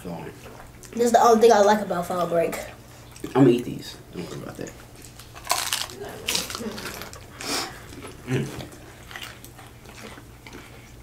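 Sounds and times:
biting crunchy taco shells: 5.0s - 11.0s.

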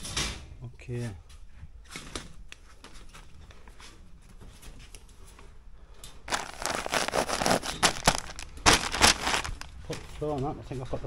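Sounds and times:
foil insulation crinkling: 6.3s - 10.3s.

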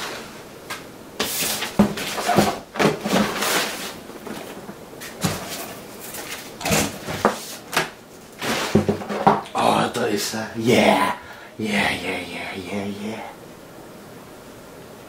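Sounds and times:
packing paper rustling: 1.2s - 9.2s
cardboard scraping: 1.2s - 9.3s.

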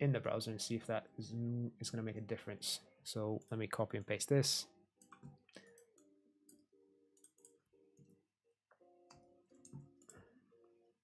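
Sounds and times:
quiet background music: 0.0s - 11.0s
keyboard and mouse clicks: 5.0s - 8.1s, 9.0s - 10.2s.

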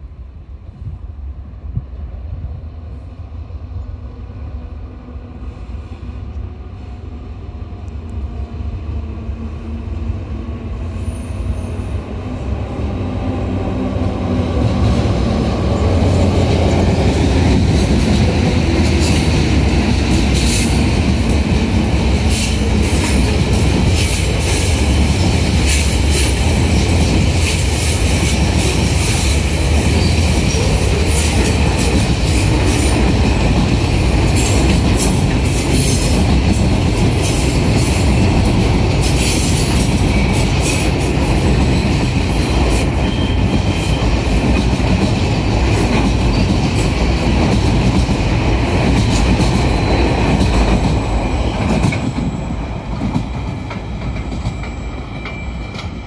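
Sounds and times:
diesel locomotive engine: 0.0s - 56.0s
high wheel squeals: 54.2s - 56.0s.

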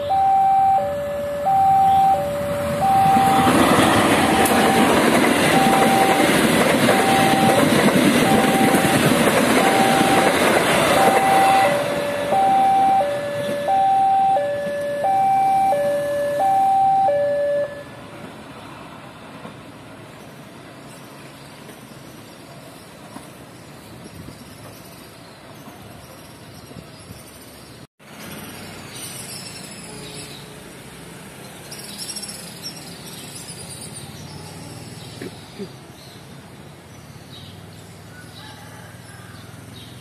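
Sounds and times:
two-tone warning chime: 0.0s - 17.9s
train rushing past: 0.0s - 20.8s.

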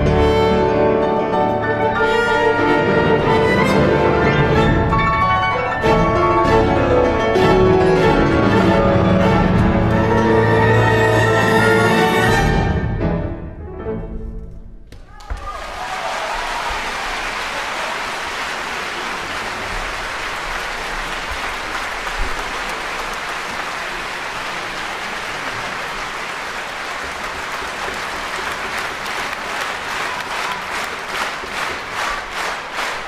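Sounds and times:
audience applauding: 15.0s - 33.0s.

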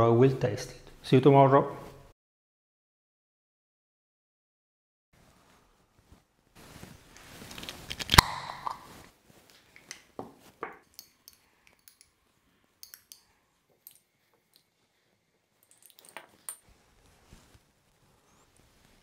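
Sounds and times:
spoon clinking against glass: 10.8s - 12.1s, 12.8s - 14.1s.

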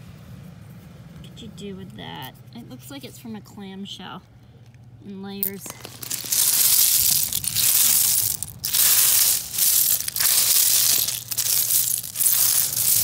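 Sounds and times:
pebbles and shells crunching: 5.4s - 13.0s.

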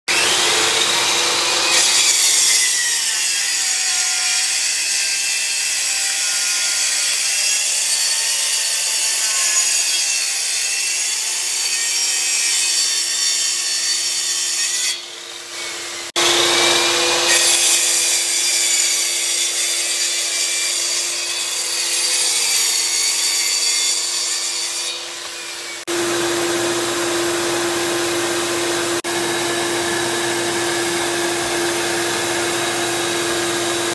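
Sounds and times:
track saw cutting wood: 0.1s - 33.9s
dust extractor humming: 15.8s - 17.3s, 25.8s - 33.9s.

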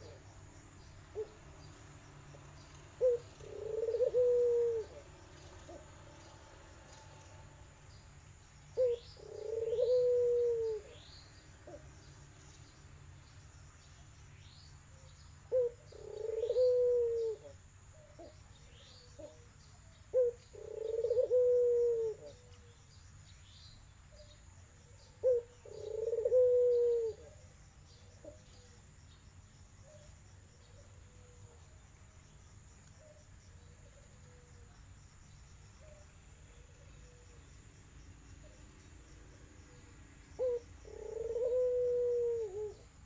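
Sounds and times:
dove cooing: 0.0s - 0.3s, 1.1s - 1.5s, 2.9s - 6.2s, 8.7s - 11.9s, 15.5s - 18.4s, 19.0s - 19.5s, 20.1s - 22.7s, 24.8s - 28.8s, 33.0s - 34.7s, 35.8s - 37.4s, 40.4s - 43.0s
small birds chirping: 0.0s - 43.0s.

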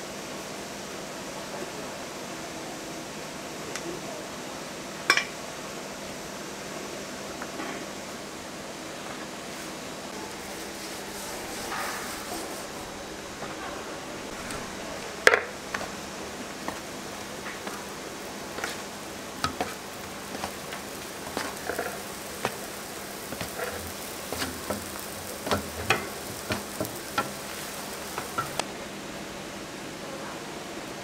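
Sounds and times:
dough sizzling on a griddle: 9.5s - 13.4s, 14.2s - 28.7s.

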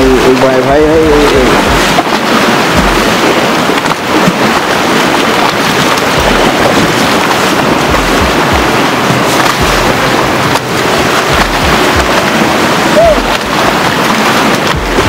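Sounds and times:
fast-flowing river rushing: 0.0s - 15.0s
low rumbling bumps on microphone: 0.8s - 3.4s, 6.1s - 12.4s.

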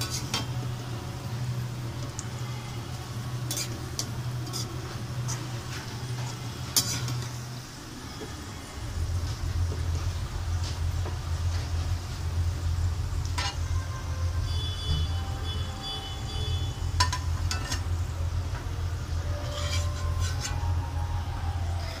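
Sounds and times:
oil sizzling: 0.0s - 13.7s
steady low hum: 0.0s - 22.0s
spoon scraping metal pan: 3.4s - 5.5s, 6.7s - 7.3s, 17.0s - 17.9s, 19.3s - 20.6s.

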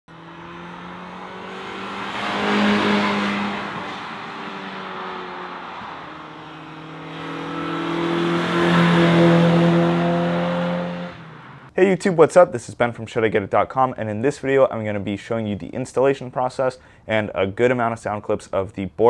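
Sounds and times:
car driving past: 0.1s - 11.7s.

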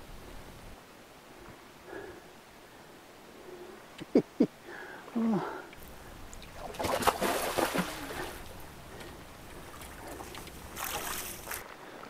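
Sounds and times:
fish thrashing and splashing water: 6.4s - 8.6s, 9.6s - 11.7s.

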